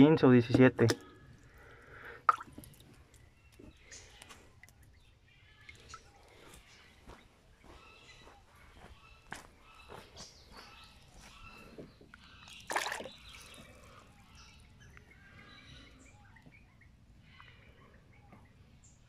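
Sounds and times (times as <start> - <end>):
water splash: 2.3 - 2.8.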